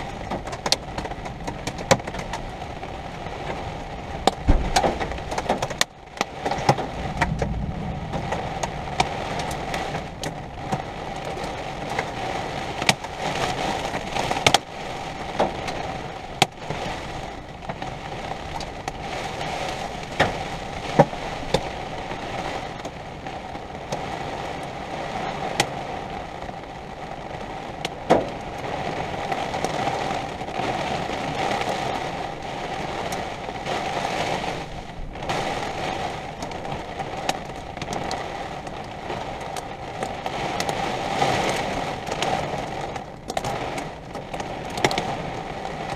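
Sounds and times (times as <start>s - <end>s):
rain on a vehicle roof: 0.0s - 45.9s
steady hum: 7.0s - 9.8s.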